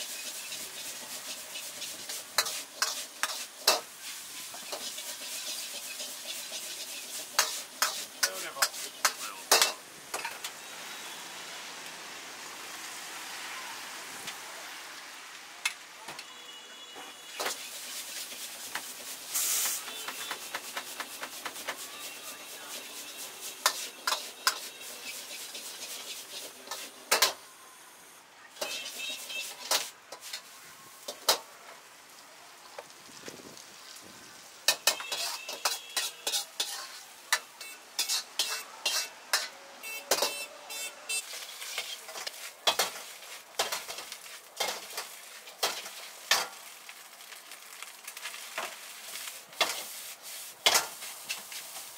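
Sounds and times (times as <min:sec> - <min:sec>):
metal ladle scraping a wok: 0:00.0 - 0:10.5, 0:17.3 - 0:27.3, 0:28.6 - 0:31.4, 0:34.7 - 0:46.5, 0:48.6 - 0:51.9
noodles sizzling in a wok: 0:00.0 - 0:16.1, 0:17.1 - 0:51.9.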